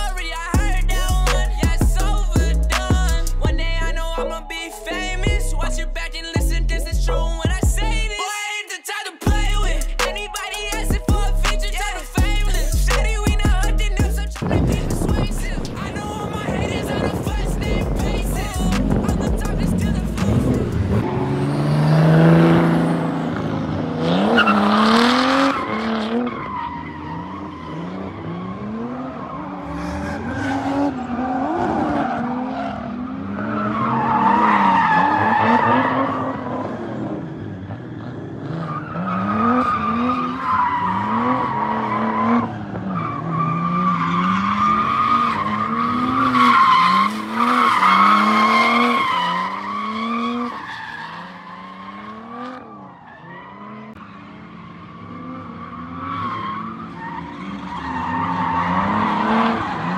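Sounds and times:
tires squealing: 9.5s - 59.9s
car engines revving: 10.6s - 59.9s.

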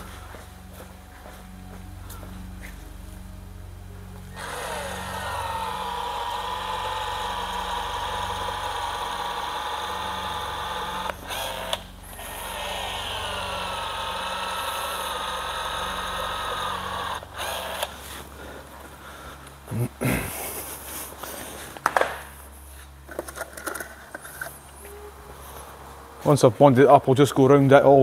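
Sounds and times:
electric motor whining: 4.2s - 19.0s, 22.8s - 26.9s.

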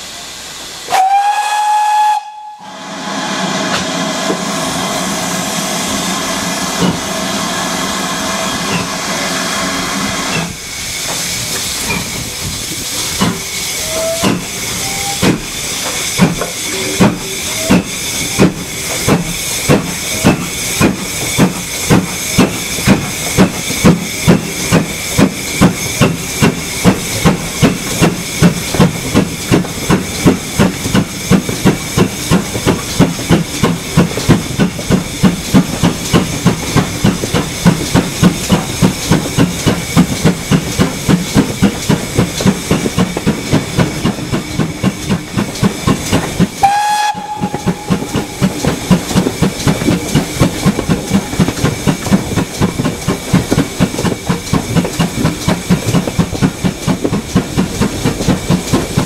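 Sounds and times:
locomotive exhaust chuffs: 0.0s - 59.0s
steam hissing: 0.0s - 59.0s
steam locomotive whistle: 0.8s - 10.4s, 13.7s - 15.4s, 16.7s - 18.3s, 46.6s - 48.6s.

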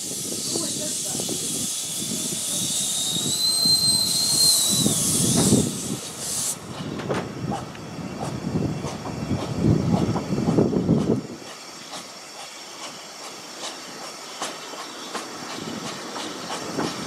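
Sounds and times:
steam hissing: 0.0s - 17.0s
train carriage rumble: 0.0s - 17.0s
wheels squealing on curve: 1.7s - 6.5s
wheels clicking over rail joints: 6.7s - 17.0s.

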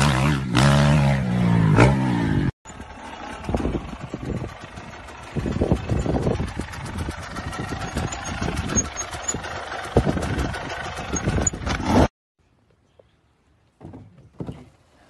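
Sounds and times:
dirt bike engine low revs: 0.0s - 12.1s
bike rattles and knocks: 2.7s - 12.1s.

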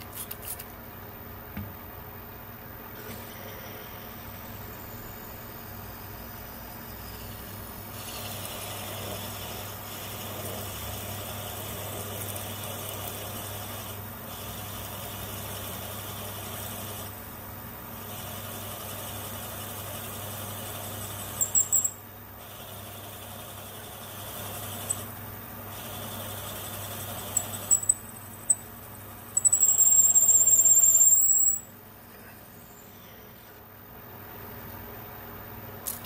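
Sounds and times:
lathe motor hum: 6.4s - 21.7s, 22.3s - 29.4s
sharp high squeaks: 21.4s - 22.0s, 27.4s - 28.7s, 29.4s - 31.7s.

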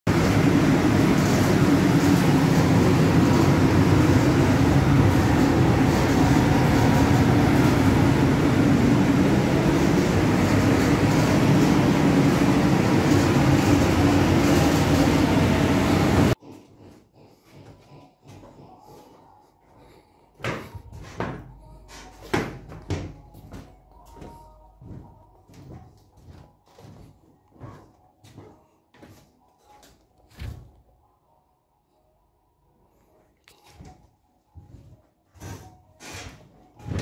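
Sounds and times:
ventilation air rushing: 0.1s - 16.4s.

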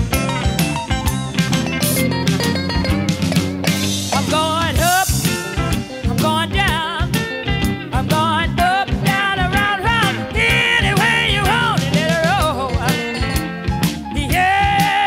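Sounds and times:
guitar and drum band: 0.0s - 15.0s
woman singing: 4.1s - 5.2s, 6.1s - 7.2s, 7.9s - 13.2s, 14.1s - 15.0s.

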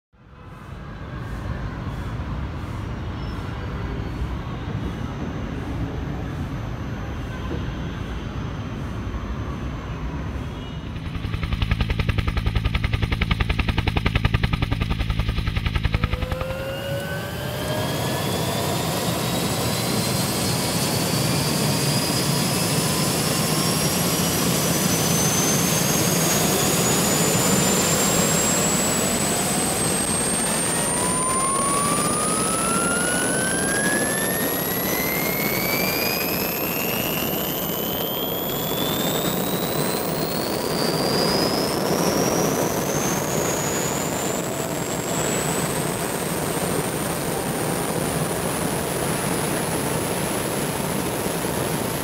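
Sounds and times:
steady rushing noise: 8.7s - 21.1s, 23.0s - 52.0s
whining tones climbing in pitch: 10.4s - 52.0s
rhythmic thumping: 10.9s - 16.6s.

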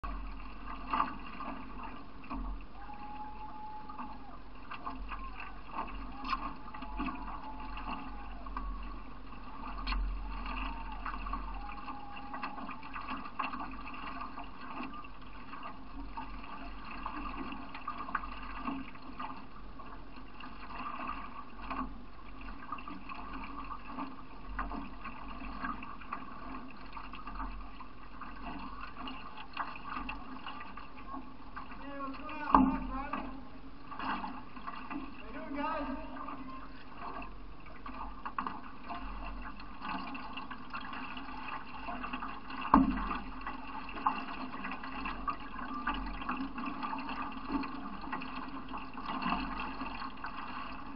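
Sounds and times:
paddle splashes and drips: 0.0s - 50.9s
water lapping around canoe hull: 0.0s - 50.9s
faint whistle-like tones: 2.7s - 8.9s, 9.9s - 13.0s.

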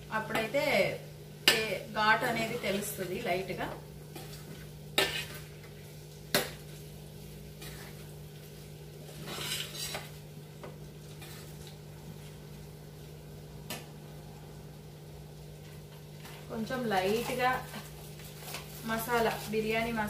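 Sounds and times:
metal spoon scraping steel pan: 9.1s - 10.1s.

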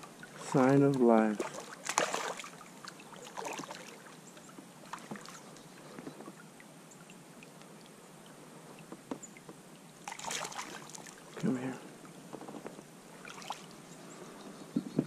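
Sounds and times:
water sloshing: 0.0s - 14.1s
fish splashing at surface: 1.4s - 4.0s, 10.1s - 11.2s.

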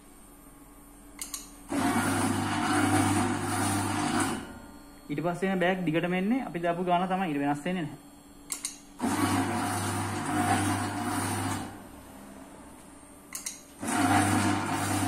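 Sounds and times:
filling machine motor humming: 0.0s - 15.0s
machine click: 1.2s - 1.5s, 8.5s - 8.8s, 13.3s - 13.6s.

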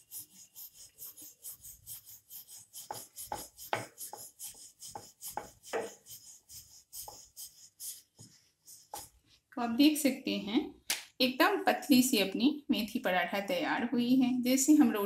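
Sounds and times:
rolling pin rubbing and knocking: 0.0s - 9.2s.

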